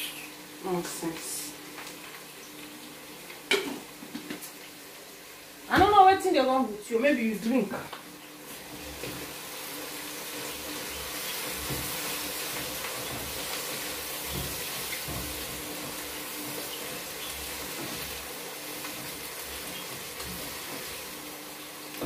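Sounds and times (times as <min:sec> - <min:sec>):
pot sizzling: 0:00.0 - 0:22.0.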